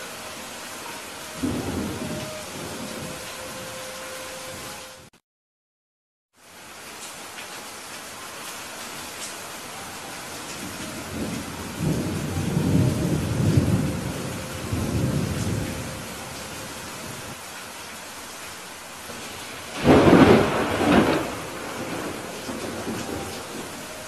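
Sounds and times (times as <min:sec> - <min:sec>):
steady rain: 0:00.0 - 0:05.1, 0:06.3 - 0:24.0
thunder rumbling: 0:01.3 - 0:03.7, 0:10.5 - 0:17.4, 0:19.1 - 0:24.0
loud thunderclap: 0:19.2 - 0:23.7.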